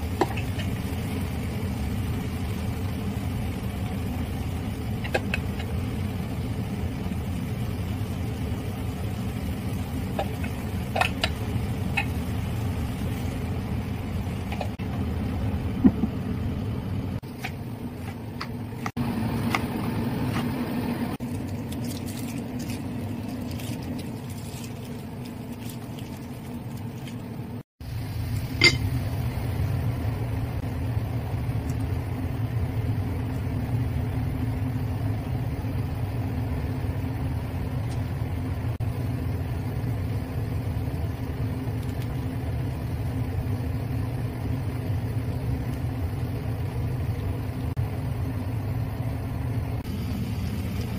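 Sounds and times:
range hood fan humming: 0.0 - 50.9
spatula clinking against wok: 28.6 - 28.9.

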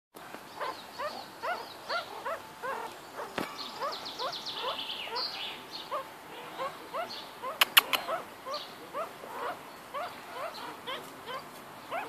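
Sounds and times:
meerkats peeping: 0.6 - 12.0
sharp click: 7.6 - 8.0.

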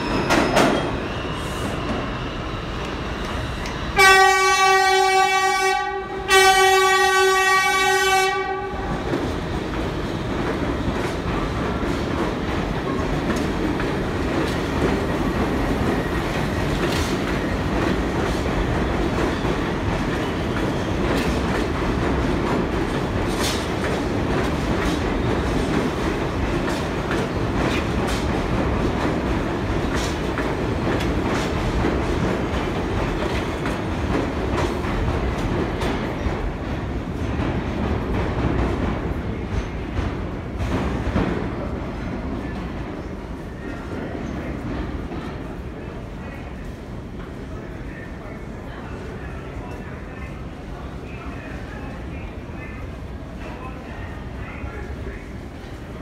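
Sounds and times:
subway cars rumbling past: 0.0 - 56.0
subway train horn blasts: 3.8 - 9.1.

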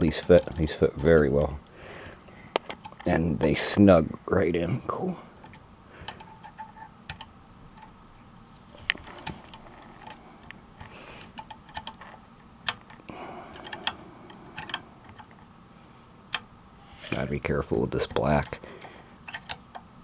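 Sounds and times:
faint rubbing and handling noise: 16.7 - 19.1.

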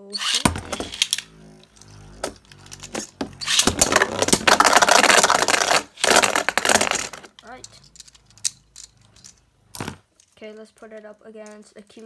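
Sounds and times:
spinning tops clashing and rattling: 0.2 - 9.5.

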